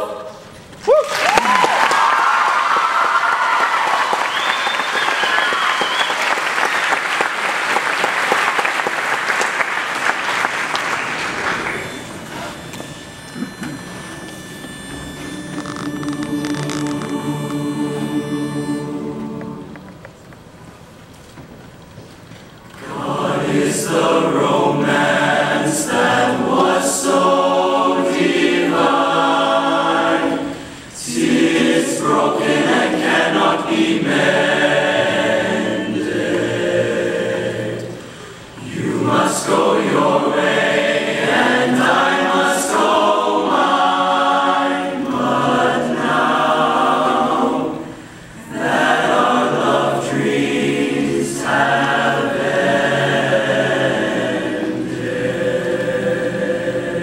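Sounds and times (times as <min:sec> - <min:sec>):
boys' chorus singing a cappella: 0:00.0 - 0:00.5, 0:15.4 - 0:20.0, 0:22.8 - 0:57.0.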